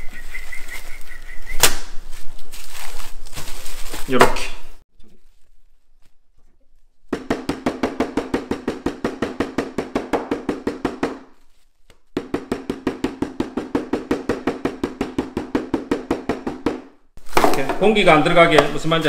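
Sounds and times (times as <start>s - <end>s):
meat mallet pounding on wood: 7.1s - 11.2s, 12.2s - 17.8s.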